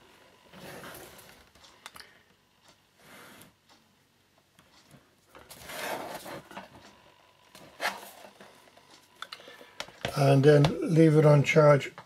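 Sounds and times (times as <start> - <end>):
laptop casing rubbing and sliding: 5.6 - 6.6.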